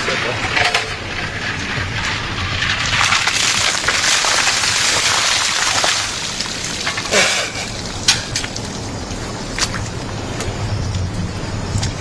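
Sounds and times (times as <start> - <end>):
water splashing onto stone: 2.8 - 8.9.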